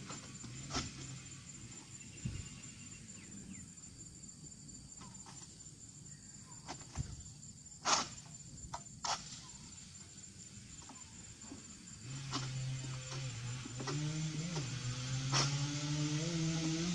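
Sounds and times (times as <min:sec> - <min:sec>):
harvesting pole knocks and scrapes: 0:00.0 - 0:01.2, 0:07.8 - 0:09.4
insects chirring: 0:00.0 - 0:16.9.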